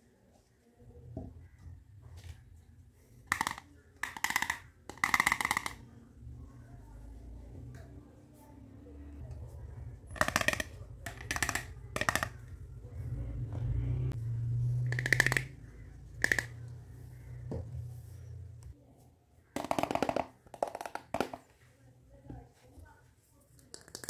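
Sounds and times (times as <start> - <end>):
plastic toy cookware clacking: 3.2 - 5.9, 10.1 - 12.6, 14.9 - 15.6, 16.2 - 16.6, 19.6 - 21.4.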